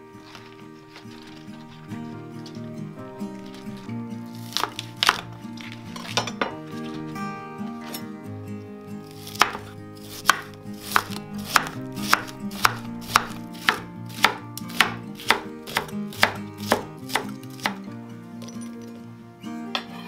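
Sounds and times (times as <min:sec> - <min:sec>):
knife chopping on wooden board: 0:04.5 - 0:05.3, 0:09.2 - 0:17.8.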